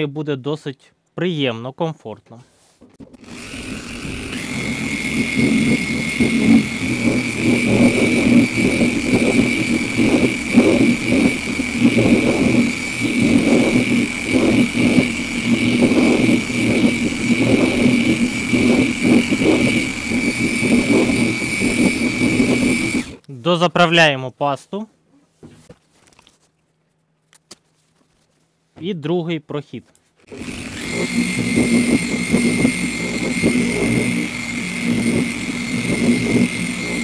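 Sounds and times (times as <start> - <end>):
car polishing machine whining: 3.2 - 23.2, 30.3 - 37.0.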